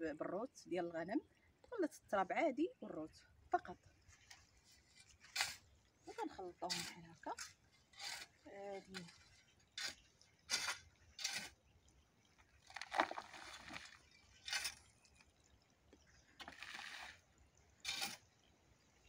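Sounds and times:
metal spade scraping soil: 0:04.2 - 0:11.6, 0:12.7 - 0:15.2, 0:16.4 - 0:17.2, 0:17.8 - 0:18.3
soil pouring into metal tube: 0:12.6 - 0:15.4, 0:16.4 - 0:18.3.

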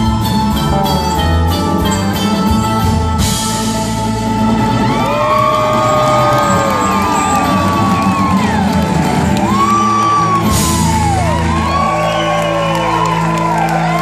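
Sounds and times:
live acoustic band playing: 0:00.0 - 0:14.0.

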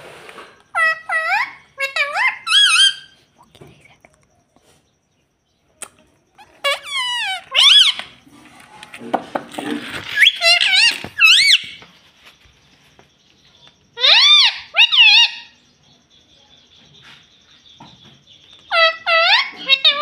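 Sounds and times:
parakeet calling: 0:00.7 - 0:03.2, 0:06.4 - 0:08.3, 0:09.7 - 0:11.9, 0:13.9 - 0:15.9, 0:18.3 - 0:20.0.

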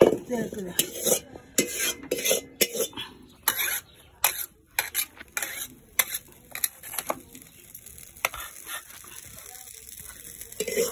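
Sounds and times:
metal spatula scraping wok: 0:00.0 - 0:10.9
tongs clinking against bowl: 0:10.6 - 0:10.9.

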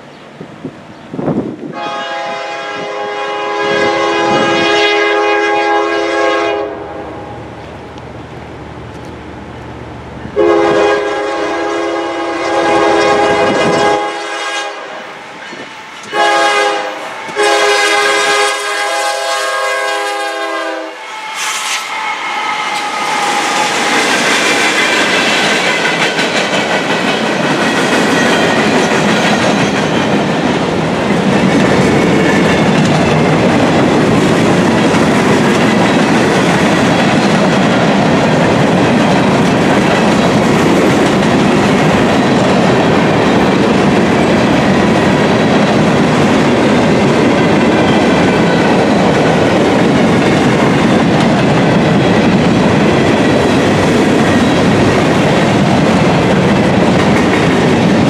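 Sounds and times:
train rumbling past: 0:00.0 - 0:58.0
locomotive air horn: 0:01.7 - 0:07.4, 0:10.4 - 0:15.0, 0:16.1 - 0:22.7
wheel clatter on rail joints: 0:22.8 - 0:58.0.

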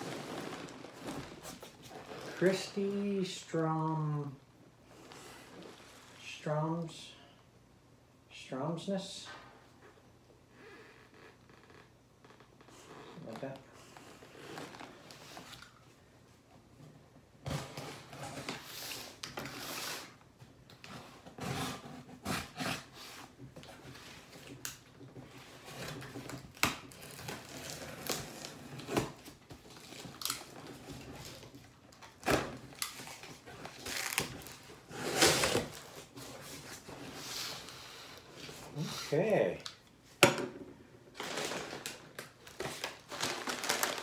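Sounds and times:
packing tape being slit and torn: 0:25.8 - 0:29.2, 0:29.8 - 0:31.4, 0:32.0 - 0:35.9.

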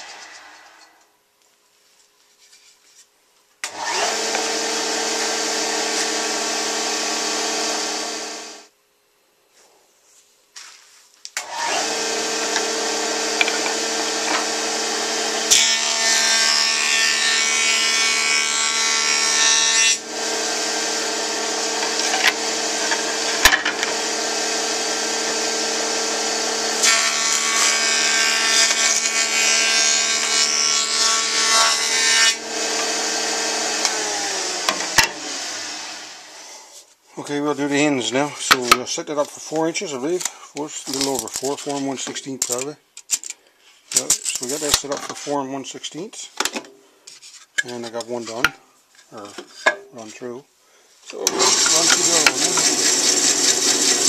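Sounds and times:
jointer motor humming: 0:03.7 - 0:08.6, 0:11.4 - 0:18.1, 0:20.0 - 0:29.4, 0:32.3 - 0:36.1, 0:51.2 - 0:54.0
cutterhead planing a board: 0:11.4 - 0:36.0, 0:51.2 - 0:54.0
machine winding down: 0:51.2 - 0:54.0.

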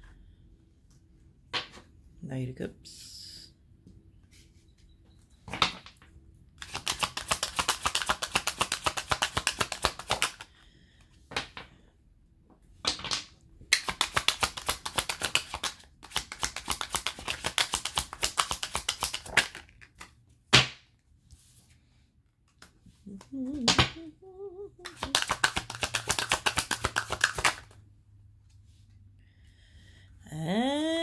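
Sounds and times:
cards being shuffled: 0:06.6 - 0:10.5, 0:13.7 - 0:20.2, 0:24.8 - 0:27.8
card snaps: 0:24.8 - 0:27.8.

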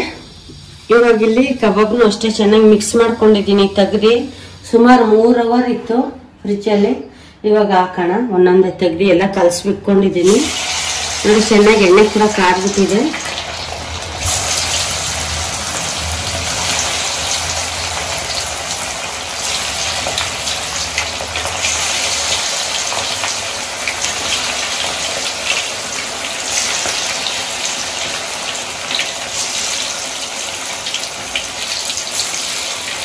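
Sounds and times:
chicken deep-frying in oil: 0:10.2 - 0:33.0.

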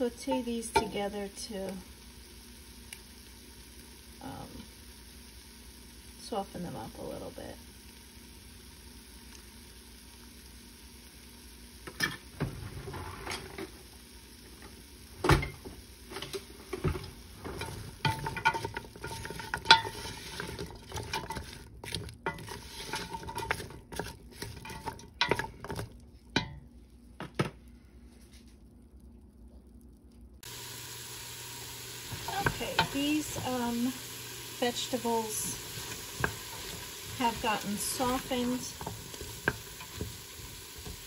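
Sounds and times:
vegetables sizzling: 0:00.0 - 0:26.9, 0:30.4 - 0:41.0
wooden spoon scraping a pot: 0:17.4 - 0:25.9, 0:35.2 - 0:41.0.

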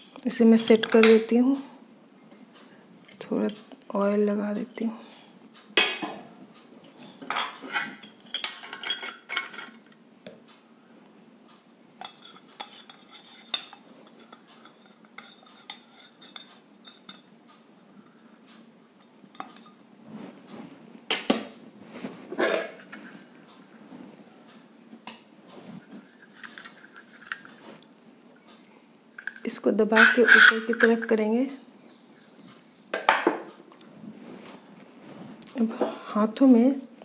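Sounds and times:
metal parts clinking: 0:26.2 - 0:27.6, 0:30.0 - 0:31.0.

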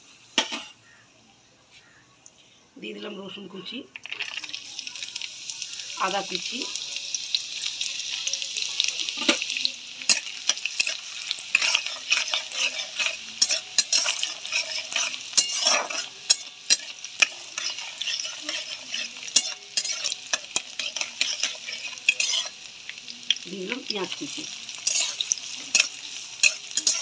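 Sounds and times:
garlic sizzling in hot oil: 0:02.8 - 0:27.0
spatula scraping pot: 0:10.1 - 0:22.6, 0:24.8 - 0:27.0.

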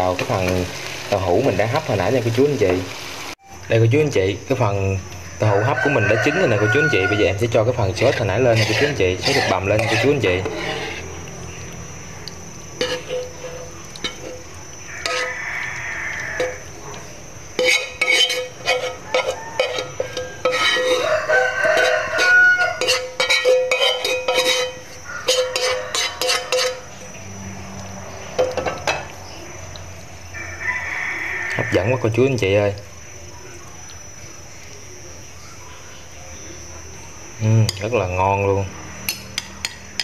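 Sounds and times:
metal spoon scraping a frying pan: 0:05.7 - 0:11.7, 0:12.8 - 0:27.2.

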